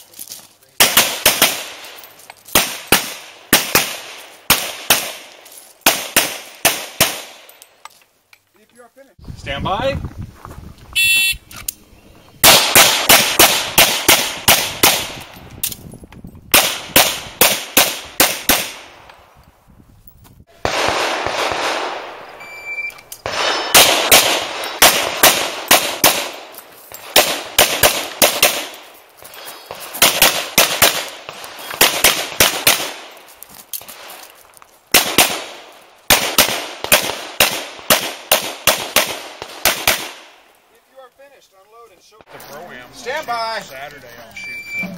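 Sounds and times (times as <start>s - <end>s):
pistol shots: 0.8s - 7.5s, 12.4s - 15.3s, 16.5s - 18.9s, 20.6s - 22.3s, 23.2s - 28.9s, 29.7s - 33.1s, 34.9s - 40.3s.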